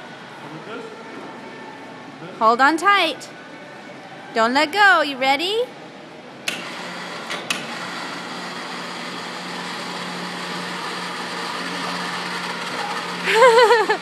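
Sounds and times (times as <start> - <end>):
motor humming and whirring: 6.5 - 14.0.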